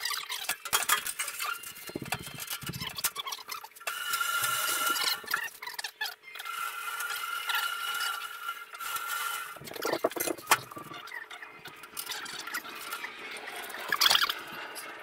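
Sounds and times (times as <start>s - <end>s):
bandsaw high whine: 3.9s - 5.5s.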